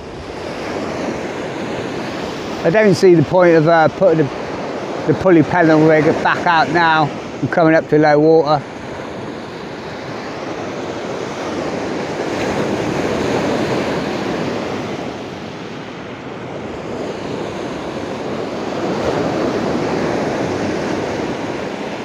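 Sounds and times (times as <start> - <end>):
waves washing onto beach: 0.0 - 22.0
wind on microphone: 0.0 - 22.0.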